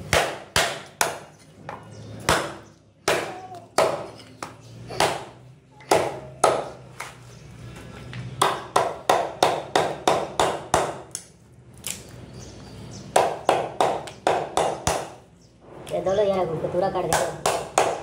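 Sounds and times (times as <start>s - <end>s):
cleaver chopping on wooden block: 2.2s - 4.2s, 8.4s - 11.2s, 13.1s - 15.2s, 17.2s - 18.0s.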